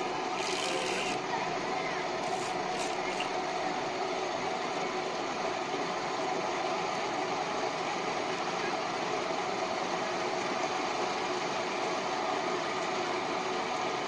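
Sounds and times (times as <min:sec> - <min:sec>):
cotton candy machine whirring: 0:00.0 - 0:03.5.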